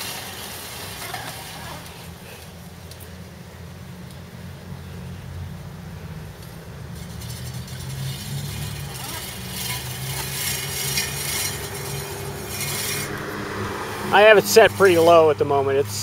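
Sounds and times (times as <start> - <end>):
push reel mower whirring: 6.9 - 15.4.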